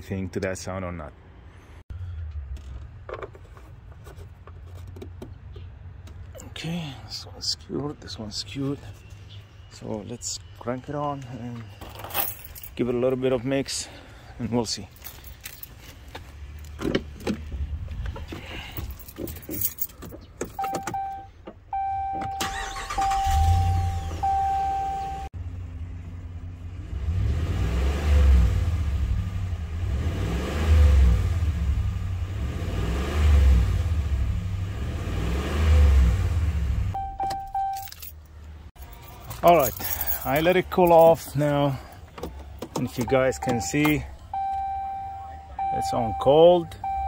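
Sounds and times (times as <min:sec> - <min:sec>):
keys jangling: 0:11.8 - 0:12.8, 0:14.9 - 0:15.9, 0:18.6 - 0:21.0, 0:37.2 - 0:41.2
dashboard chime beeping: 0:20.6 - 0:25.3, 0:37.0 - 0:37.9, 0:43.0 - 0:47.0
car engine starting and revving: 0:20.6 - 0:37.8, 0:43.0 - 0:47.0.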